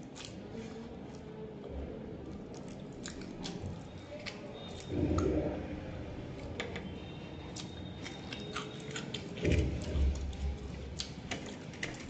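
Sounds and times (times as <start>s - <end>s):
wet mouth clicks and smacks: 0.0s - 0.4s, 2.5s - 5.4s
close-miked chewing: 0.0s - 6.6s, 7.3s - 12.0s.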